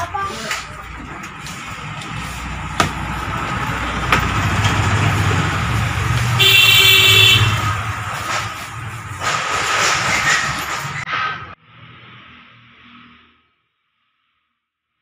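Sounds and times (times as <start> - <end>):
vehicle engine rumble: 0.0 - 12.9
car horn toot: 6.4 - 7.9.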